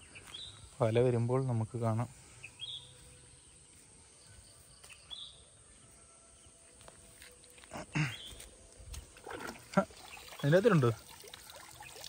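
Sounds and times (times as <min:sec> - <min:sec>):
riverside ambience: 0:00.0 - 0:05.1.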